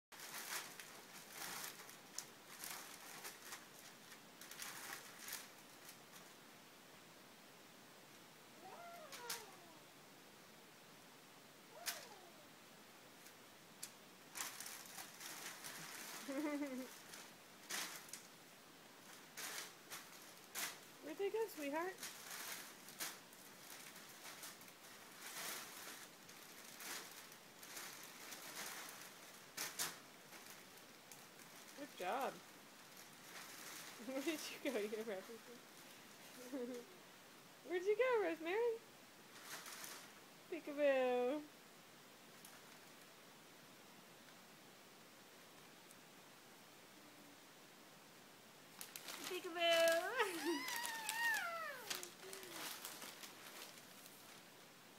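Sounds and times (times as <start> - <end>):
wrapping paper rustling: 0.2 - 6.3, 11.8 - 12.4, 13.8 - 18.4, 19.0 - 35.7, 39.3 - 40.2, 48.7 - 54.6.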